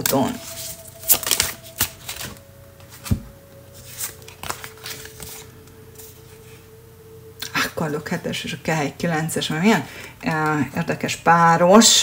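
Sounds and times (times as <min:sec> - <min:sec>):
cards being handled: 0:00.0 - 0:06.2
cards being shuffled: 0:00.0 - 0:06.2.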